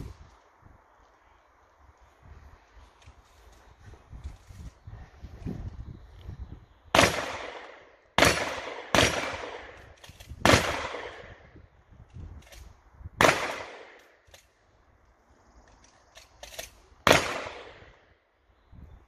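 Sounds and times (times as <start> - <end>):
shotgun shots with echo: 6.9 - 9.8, 10.4 - 11.4, 13.2 - 14.0, 17.0 - 17.8.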